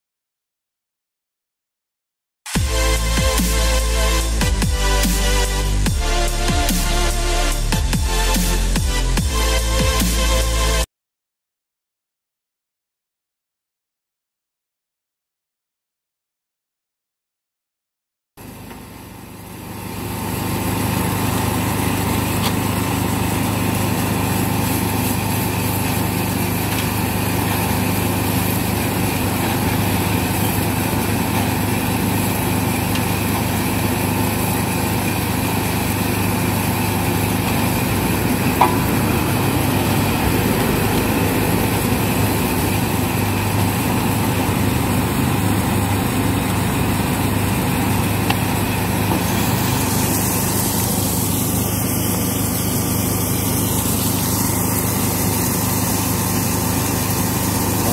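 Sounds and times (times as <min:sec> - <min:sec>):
rotating drum roaster drone: 0:02.5 - 0:10.8, 0:18.5 - 0:57.9
gas burner hiss: 0:19.2 - 0:57.9.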